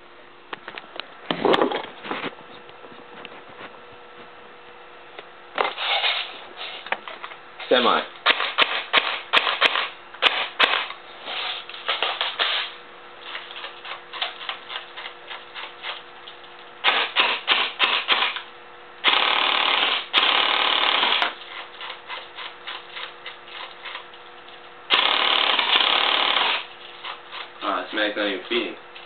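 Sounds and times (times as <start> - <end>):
airsoft gun firing: 8.2 - 10.9, 16.8 - 18.4, 19.0 - 21.3, 24.9 - 26.7.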